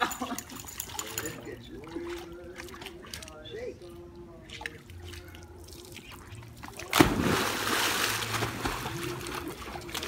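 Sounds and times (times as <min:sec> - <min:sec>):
water churning: 0:01.7 - 0:10.0
dog splashing into pool: 0:06.6 - 0:10.0.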